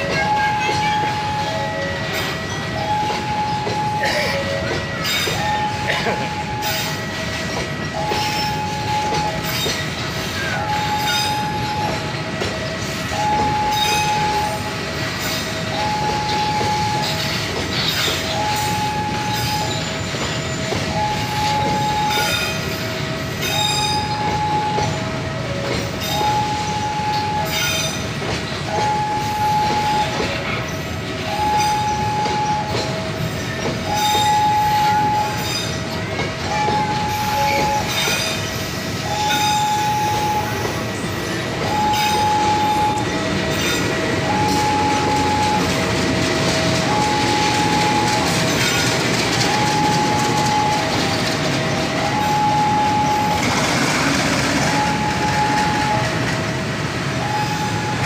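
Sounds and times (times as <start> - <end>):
two-tone electronic warning signal: 0.0 - 58.0
freight wagons rumbling past: 24.0 - 58.0.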